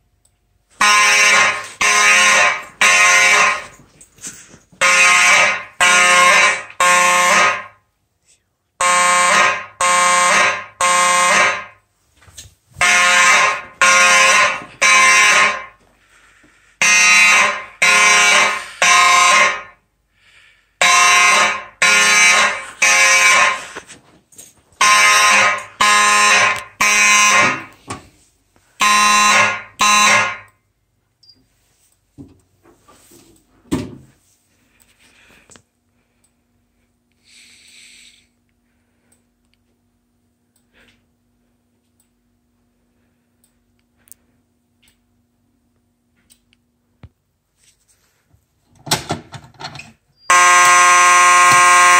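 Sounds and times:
fire alarm horn blasts: 0.8 - 3.8, 4.8 - 7.8, 8.8 - 11.8, 12.8 - 15.8, 16.8 - 19.9, 20.8 - 23.8, 24.8 - 27.8, 28.8 - 30.6, 50.3 - 51.9.

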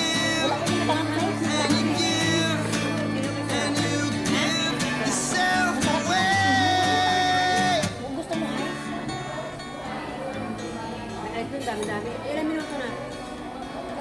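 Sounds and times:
person singing: 0.0 - 8.0
country song with guitar: 0.0 - 14.0.

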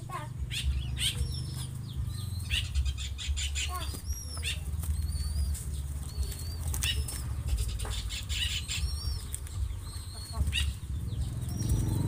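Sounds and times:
chicks flapping wings: 0.4 - 12.0
chicks peeping: 0.4 - 12.0.

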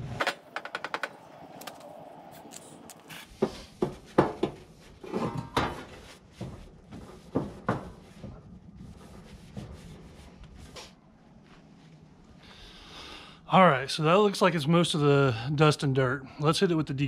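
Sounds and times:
grill side table knocking: 3.4 - 5.8
wet rag rubbing: 5.9 - 10.9.

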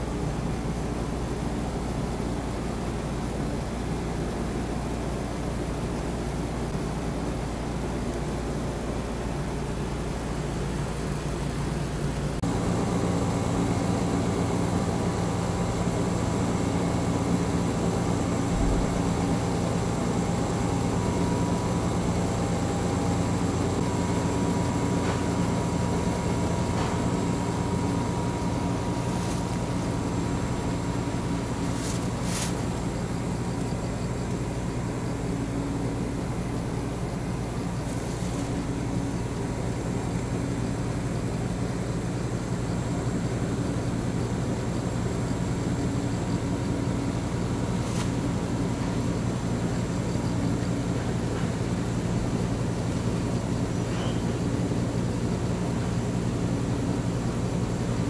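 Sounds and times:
air conditioner hum: 0.0 - 58.0.

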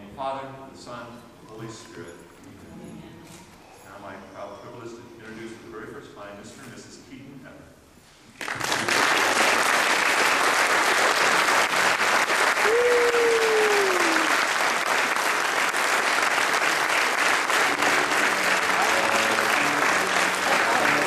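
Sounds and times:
guests applauding: 8.4 - 21.0.

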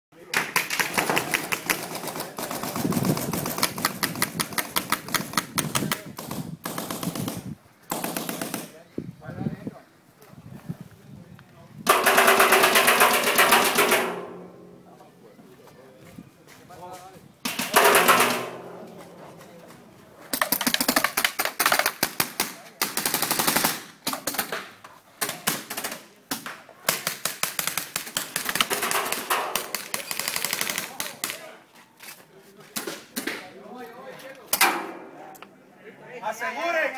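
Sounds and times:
paintball markers firing: 0.3 - 8.8, 11.9 - 14.3, 25.2 - 31.4.

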